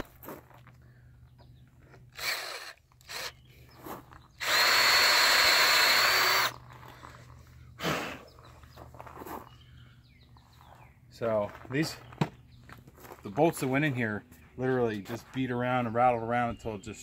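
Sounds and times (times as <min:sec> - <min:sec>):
cordless drill whining: 0:02.1 - 0:03.7, 0:04.4 - 0:07.2.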